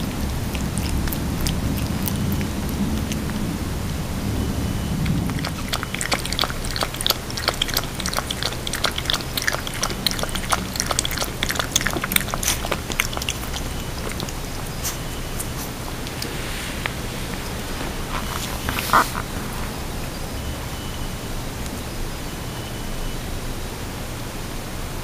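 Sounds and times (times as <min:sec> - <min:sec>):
puppy gnawing at pen bars: 0:00.0 - 0:04.0, 0:04.9 - 0:20.0.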